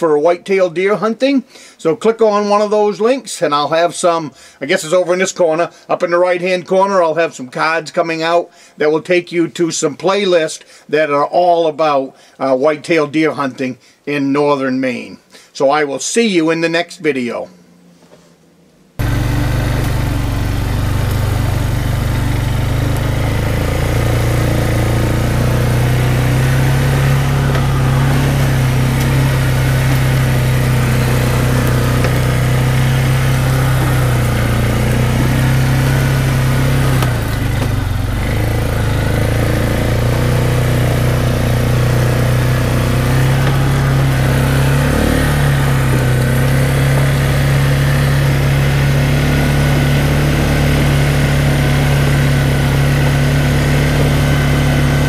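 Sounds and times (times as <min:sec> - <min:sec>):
atv engine running: 0:19.0 - 0:55.0.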